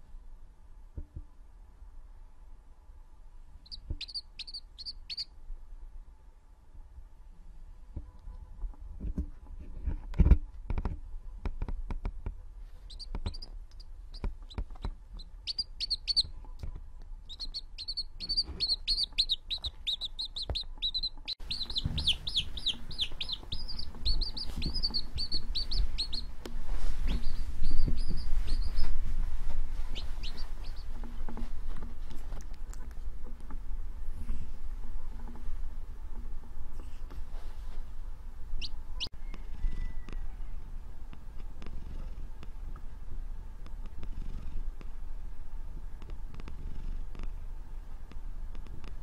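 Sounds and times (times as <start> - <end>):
baby chick peeping: 3.6 - 5.4, 12.8 - 33.6, 38.5 - 41.7
dull bumps: 18.2 - 33.7.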